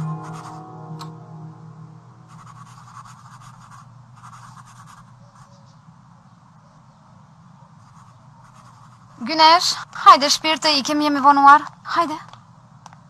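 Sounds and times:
pen scratching on paper: 0:02.3 - 0:05.5, 0:07.8 - 0:09.2.

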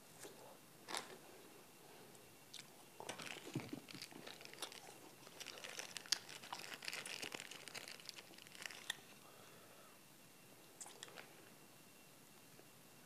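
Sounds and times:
plastic wrapper crinkling: 0:03.0 - 0:09.1.

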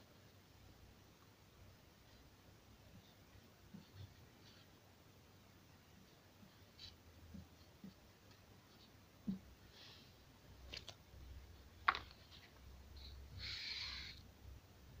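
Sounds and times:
marker scratching on whiteboard: 0:06.0 - 0:08.0, 0:13.0 - 0:14.2.

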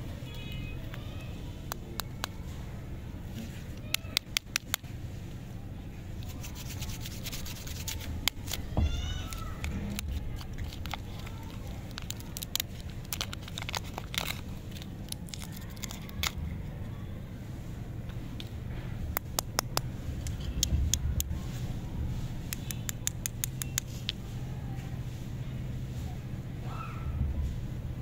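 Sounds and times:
wrapper crinkling: 0:06.2 - 0:16.6
sharp clicks: 0:22.5 - 0:24.0.

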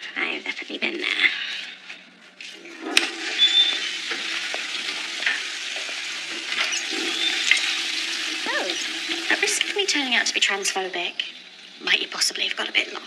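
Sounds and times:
tap water running into basin: 0:02.6 - 0:12.8.

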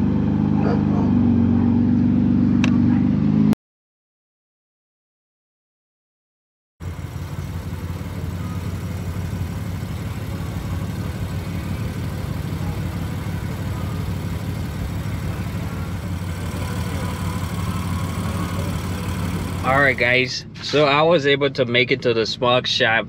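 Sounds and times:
car engine idling: 0:06.8 - 0:20.5.

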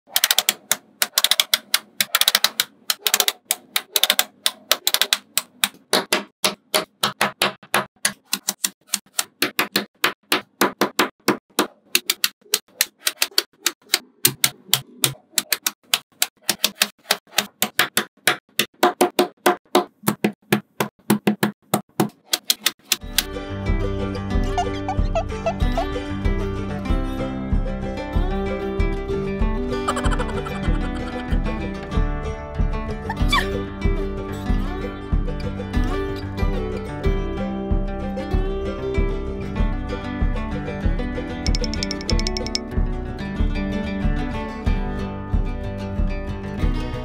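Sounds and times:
magnetic balls clicking together: 0:00.1 - 0:05.8, 0:41.5 - 0:42.7.

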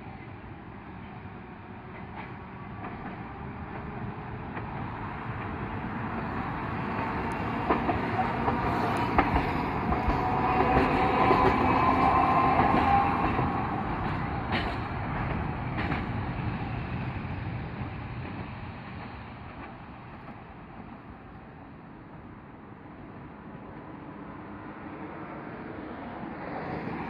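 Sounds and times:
tram whine: 0:00.0 - 0:27.0
tram wheels clicking over rail joints: 0:01.8 - 0:17.0, 0:17.7 - 0:21.0.

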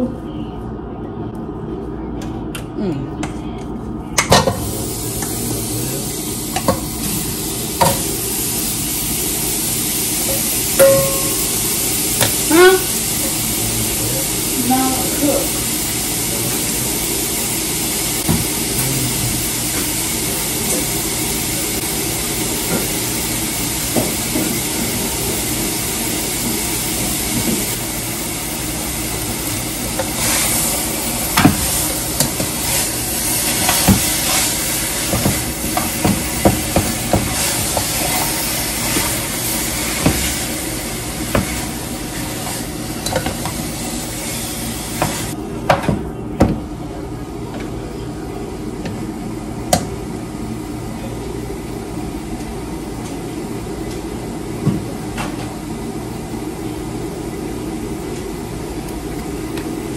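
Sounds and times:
steady hiss: 0:04.6 - 0:43.0.

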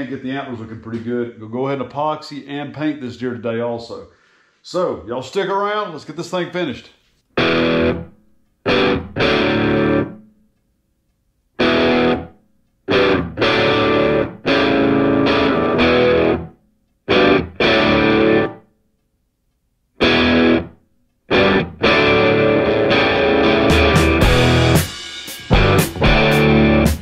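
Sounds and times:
distorted guitar chord stabs: 0:07.4 - 0:08.1, 0:08.7 - 0:10.2, 0:11.6 - 0:12.3, 0:12.9 - 0:16.5, 0:17.1 - 0:18.6, 0:20.0 - 0:20.7, 0:21.3 - 0:27.0.

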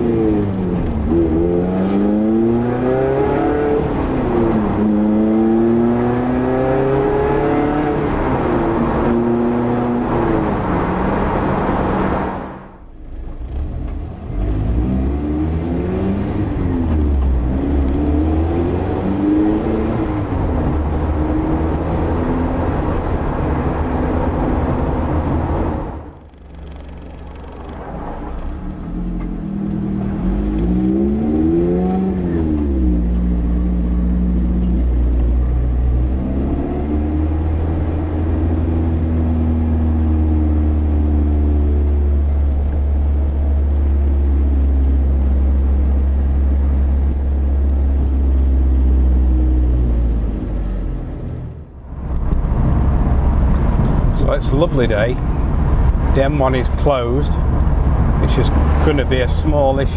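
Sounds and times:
steady low rumble: 0:19.6 - 0:59.9.

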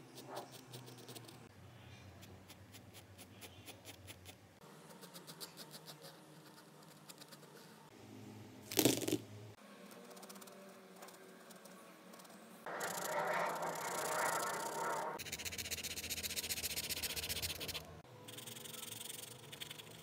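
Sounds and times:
pencil scratching on paper: 0:10.0 - 0:20.0.

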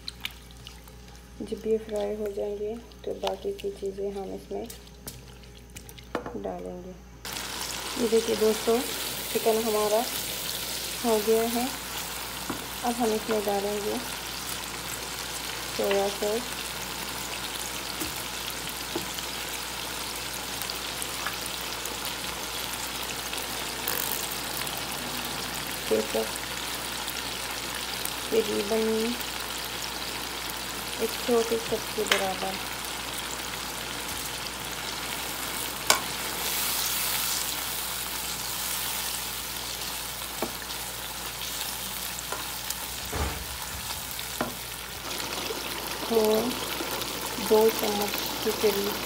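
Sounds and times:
chicken sizzling in a wok: 0:07.2 - 0:49.0
dull thump: 0:43.0 - 0:43.6.

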